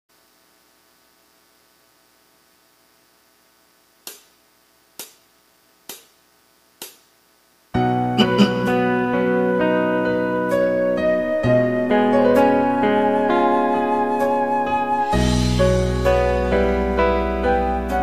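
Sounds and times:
electric piano chords: 0:08.0 - 0:12.7
karaoke backing track: 0:08.0 - 0:18.0
count-in clicks: 0:08.2 - 0:09.2.

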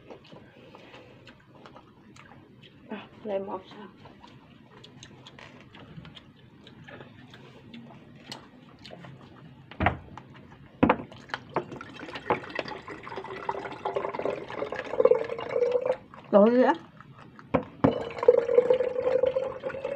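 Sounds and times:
water pouring into glass bottle: 0:11.6 - 0:16.1, 0:17.8 - 0:19.9.

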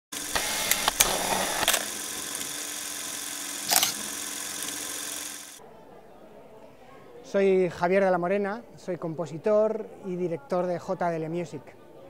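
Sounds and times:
sharp clicks: 0:00.2 - 0:01.8.

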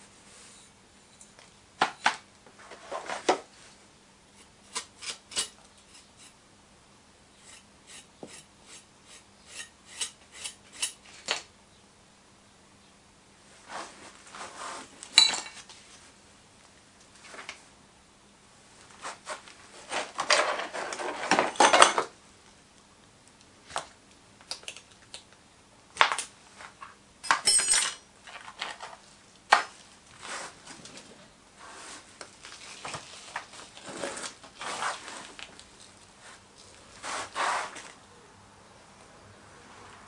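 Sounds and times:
hand tools clinking on metal: 0:27.2 - 0:28.0.

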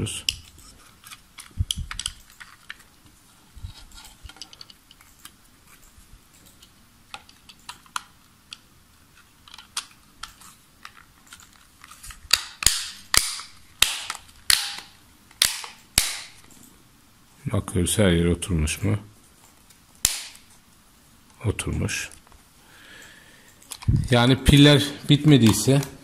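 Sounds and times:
plastic clips snapping: 0:01.0 - 0:02.9, 0:12.3 - 0:16.5, 0:20.0 - 0:20.5.

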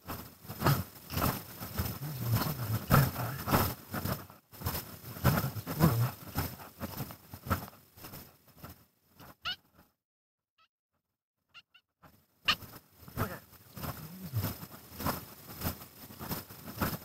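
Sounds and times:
man muttering: 0:00.6 - 0:03.6, 0:05.1 - 0:06.5, 0:13.2 - 0:14.6.

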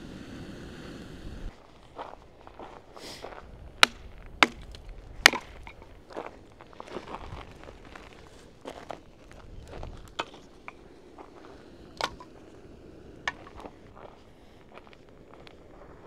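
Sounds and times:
campfire crackling and popping: 0:03.6 - 0:16.0.

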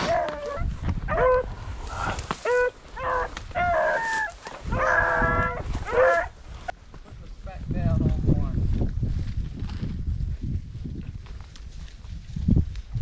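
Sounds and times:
dogs baying and yelping: 0:00.0 - 0:06.4.

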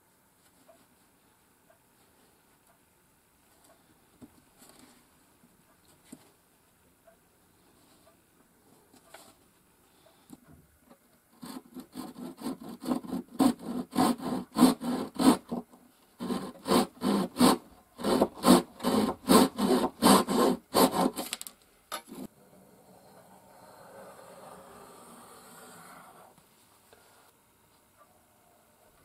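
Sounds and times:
hand saw cutting wood: 0:11.4 - 0:15.6, 0:16.2 - 0:21.4.

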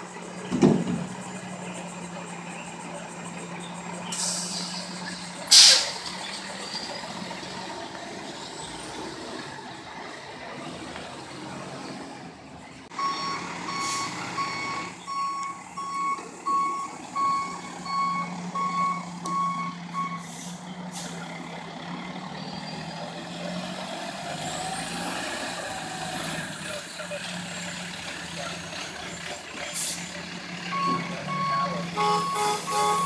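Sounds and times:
truck diesel engine running: 0:00.0 - 0:33.0
short hiss: 0:04.1 - 0:06.0
backup alarm beeping: 0:12.9 - 0:20.2, 0:30.7 - 0:33.0.

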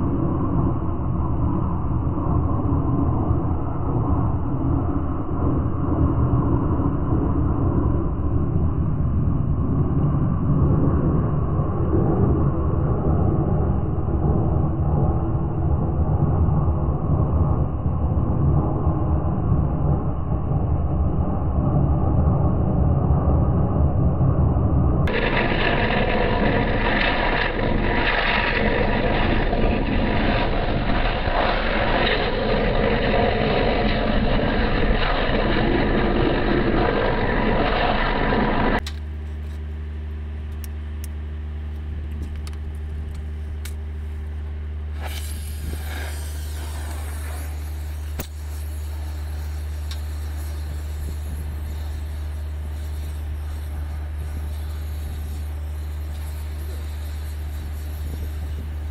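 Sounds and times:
low hum: 0:00.0 - 0:58.9
thermal lance hissing: 0:25.1 - 0:38.8, 0:44.9 - 0:58.9.

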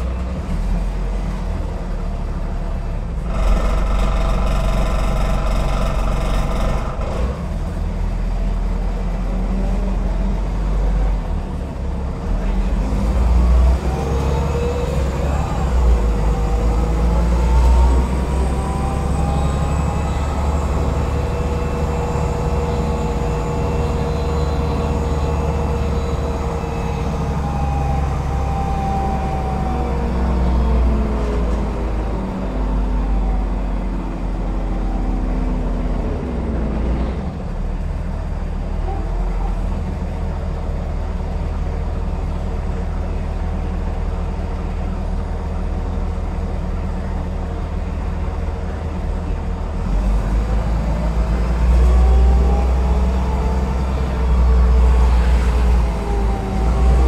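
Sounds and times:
bus engine rumble: 0:00.0 - 0:57.0
drivetrain whine: 0:02.4 - 0:08.6.

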